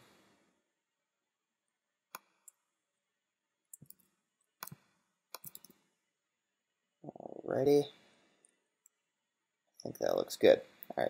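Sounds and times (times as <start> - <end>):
mouse and keyboard clicks: 3.7 - 5.8.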